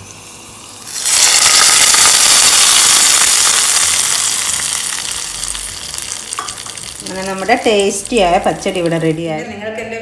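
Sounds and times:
hot oil sizzling and crackling: 0.0s - 9.4s.

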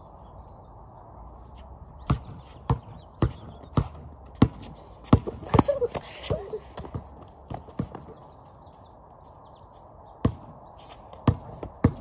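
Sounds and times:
basketball bouncing on concrete: 2.0s - 8.3s, 10.2s - 10.6s, 11.2s - 12.0s.

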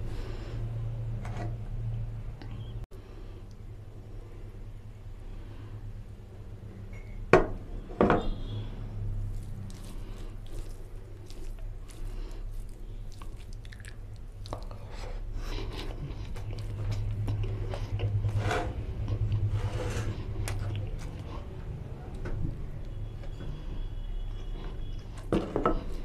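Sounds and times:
fingers mixing rice wetly: 9.1s - 22.6s.

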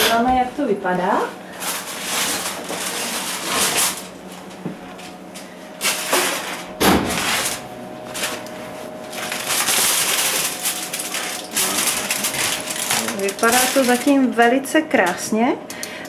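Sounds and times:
aluminium foil crinkling: 1.5s - 4.2s, 5.8s - 15.2s.

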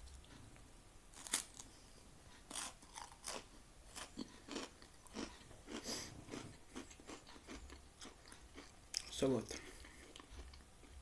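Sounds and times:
crispbread crunching: 1.1s - 1.7s, 2.5s - 10.6s.

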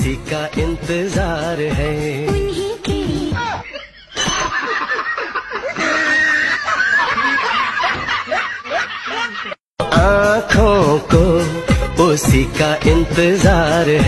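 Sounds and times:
people laughing and giggling: 3.4s - 9.6s.

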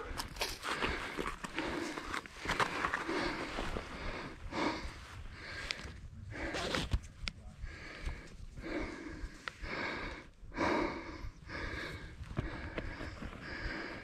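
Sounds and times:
man breathing hard: 0.0s - 6.8s, 7.6s - 14.0s.

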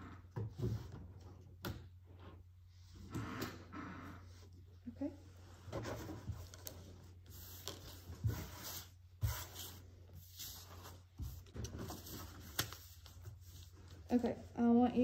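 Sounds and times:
puzzle pieces and papers handled: 5.7s - 14.3s.

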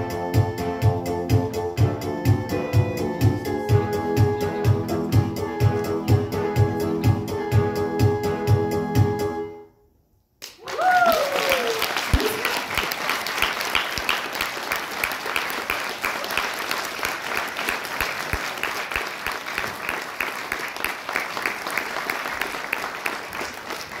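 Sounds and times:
audience applauding: 10.4s - 24.0s.

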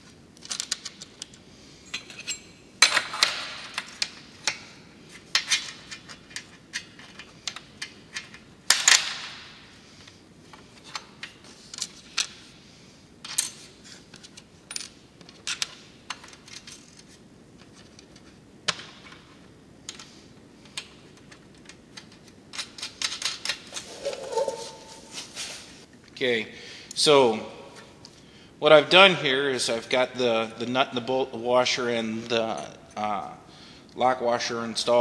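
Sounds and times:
small metal fasteners clinking: 0.4s - 4.0s, 21.2s - 25.3s.

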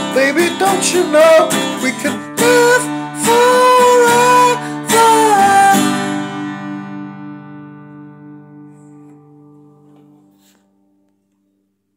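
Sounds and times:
man singing: 0.0s - 6.7s
acoustic guitar chord: 0.0s - 10.9s.

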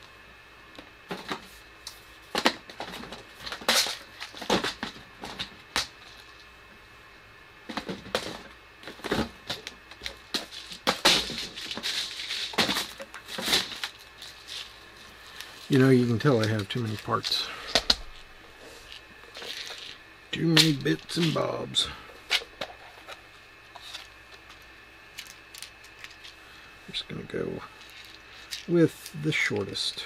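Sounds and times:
small parts clicking and clattering: 7.7s - 14.8s, 18.9s - 21.4s, 22.3s - 26.4s, 27.8s - 29.2s.

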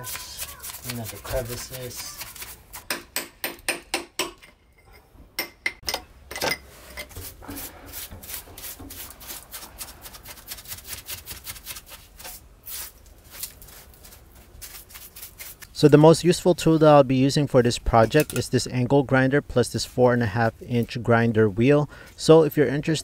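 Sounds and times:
brush scrubbing concrete: 0.0s - 2.8s, 7.1s - 15.8s.

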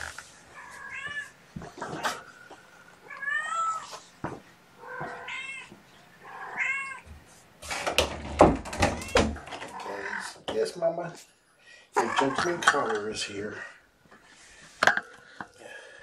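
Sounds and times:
cat meowing: 0.6s - 1.4s, 3.0s - 3.9s, 4.8s - 7.0s.

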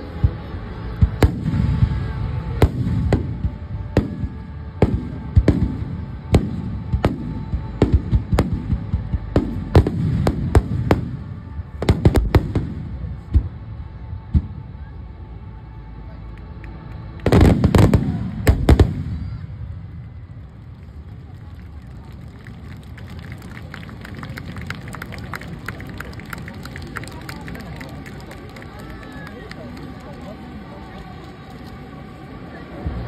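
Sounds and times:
fireworks bangs with rumble: 1.0s - 13.6s, 17.2s - 19.8s.

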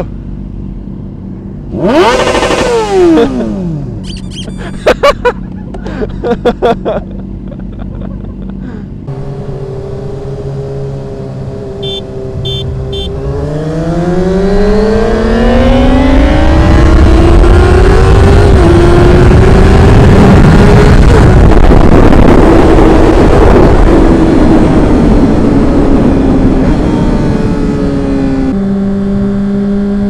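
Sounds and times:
motorcycle engine revving: 1.2s - 4.9s, 8.5s - 30.0s
wind noise: 14.0s - 28.6s.

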